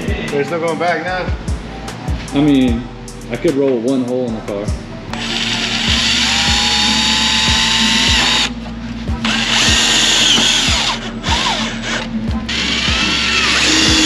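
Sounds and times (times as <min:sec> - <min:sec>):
background music with steady beat: 0:00.0 - 0:14.0
cordless drill motor whining: 0:05.2 - 0:08.5, 0:09.2 - 0:14.0.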